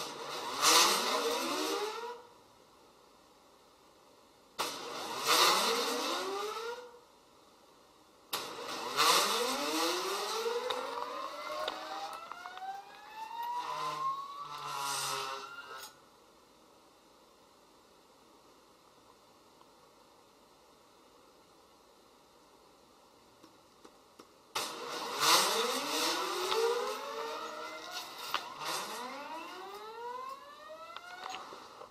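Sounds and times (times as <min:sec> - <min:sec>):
stepper motors whining: 0:08.4 - 0:16.0, 0:24.6 - 0:31.9.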